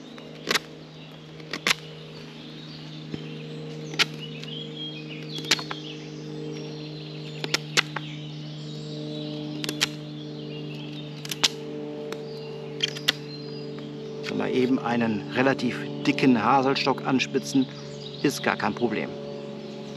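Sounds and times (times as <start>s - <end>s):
steady low hum: 0.0s - 19.9s
knife whittling stick cracks: 0.4s - 0.7s, 1.4s - 1.9s, 3.9s - 4.2s, 5.3s - 5.8s, 7.4s - 8.1s, 9.6s - 10.0s, 11.1s - 13.3s.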